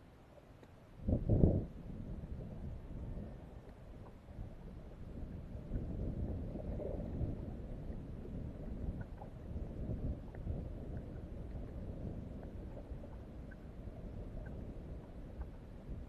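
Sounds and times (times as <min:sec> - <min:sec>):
faint small ticks: 0:00.3 - 0:00.9, 0:03.6 - 0:04.5, 0:10.2 - 0:16.0
wind buffeting microphone: 0:01.0 - 0:03.5, 0:04.3 - 0:16.0.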